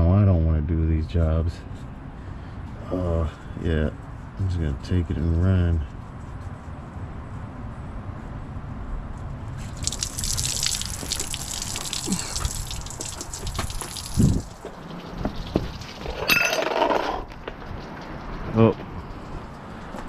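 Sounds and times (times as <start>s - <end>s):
water gushing and splashing on ground: 9.6s - 16.2s.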